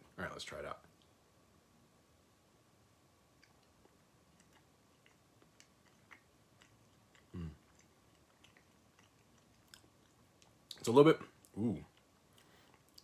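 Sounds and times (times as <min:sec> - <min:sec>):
person chewing softly: 0:03.3 - 0:13.0
person humming mm: 0:07.3 - 0:07.6.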